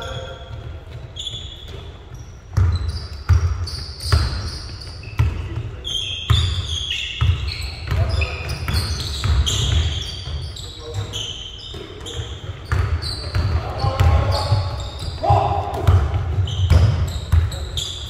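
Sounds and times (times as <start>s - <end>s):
basketball bouncing on court: 0.0s - 18.0s
sneakers squeaking: 0.0s - 18.0s.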